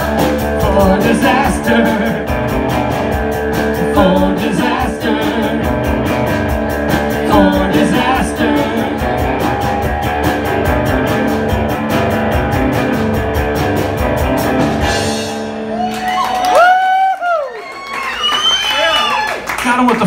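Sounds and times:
drum kit with cymbals: 0.0s - 15.8s
electric guitar chords: 0.0s - 16.6s.

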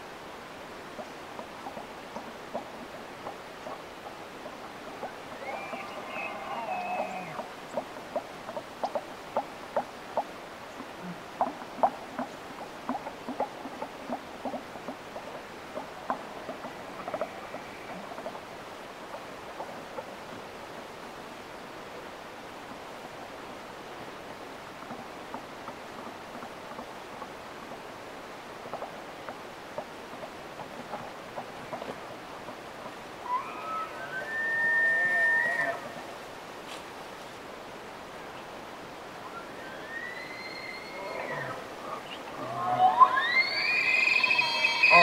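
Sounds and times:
wind hiss: 0.0s - 45.0s
elk chirps and mews: 33.2s - 36.0s, 39.3s - 45.0s.

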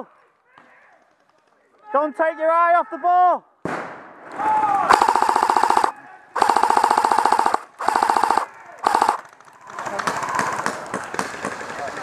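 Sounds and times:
airsoft rifle firing full auto: 4.9s - 11.7s.

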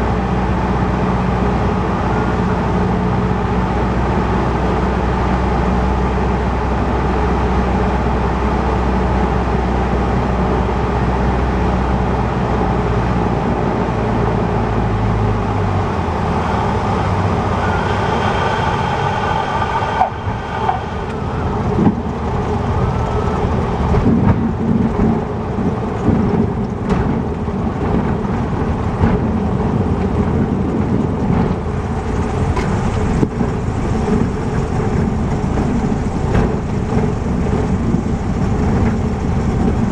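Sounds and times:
small plane engine: 0.0s - 39.9s
wheels rumbling on runway: 0.0s - 39.9s
high steady tone: 16.7s - 21.9s.

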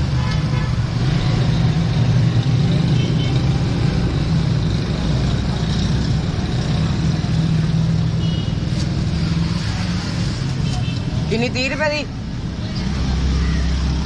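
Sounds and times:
traffic engine rumble: 0.0s - 14.0s.

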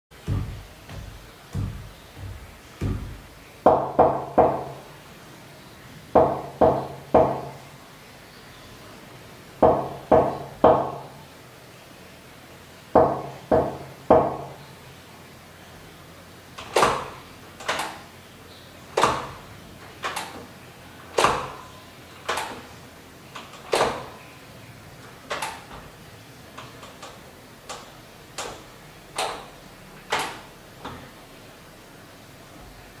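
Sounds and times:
knuckles knocking on wooden door: 0.2s - 4.8s, 6.2s - 7.6s, 9.6s - 11.2s, 13.0s - 14.6s.

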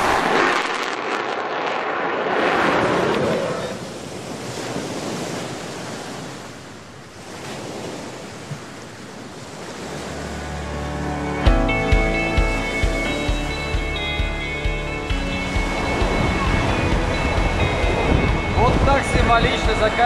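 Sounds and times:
surf rushing: 0.0s - 20.0s
wind on microphone: 15.0s - 20.0s.

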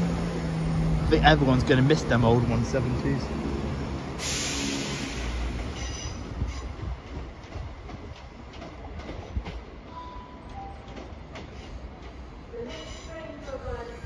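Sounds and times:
diesel train rumble: 0.0s - 14.0s
train wheel squeal: 4.3s - 6.9s, 12.6s - 13.4s.

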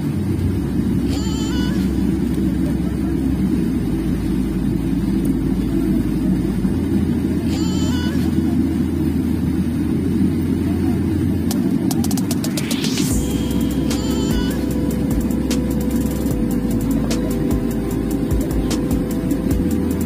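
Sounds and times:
jet engines rumbling in cabin: 0.0s - 20.0s
faint high tone: 1.0s - 4.9s, 7.3s - 9.0s, 12.8s - 19.5s.

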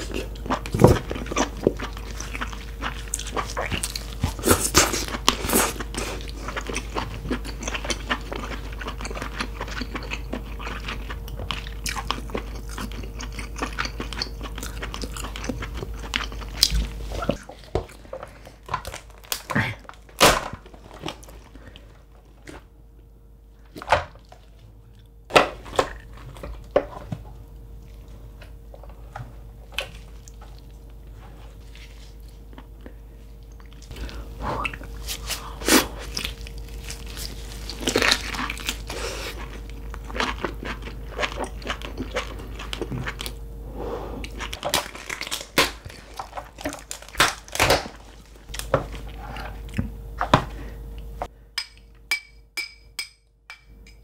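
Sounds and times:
lobster shell cracking: 44.5s - 48.7s.

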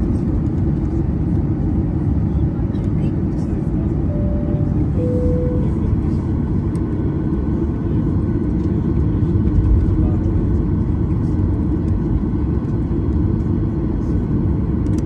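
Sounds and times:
airplane cabin rumble taxiing: 0.0s - 15.0s
short steady tone: 4.0s - 6.2s.

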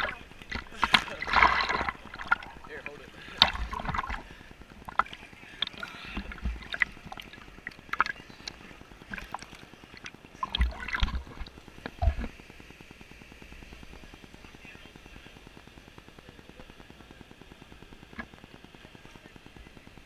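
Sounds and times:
water splashing around camera: 0.0s - 12.4s
waves thumping camera: 0.0s - 12.4s.

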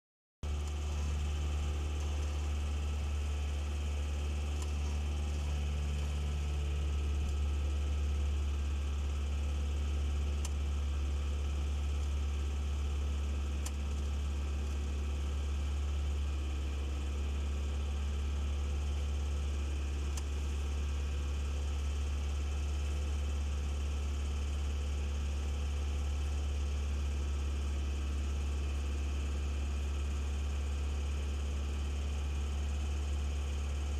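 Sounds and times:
vehicle engine idling: 0.4s - 33.9s.

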